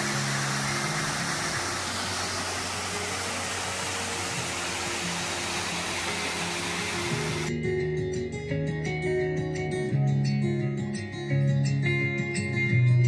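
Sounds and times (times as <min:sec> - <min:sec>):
steady rushing noise: 0:00.0 - 0:07.5.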